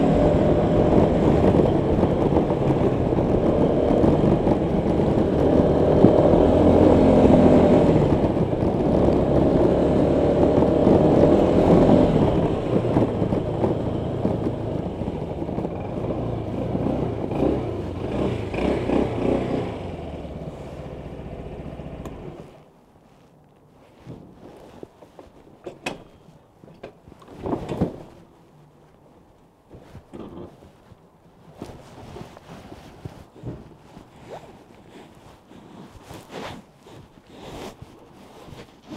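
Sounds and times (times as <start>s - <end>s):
scooter engine running: 0.0s - 22.6s
wind and road rush: 0.0s - 38.9s.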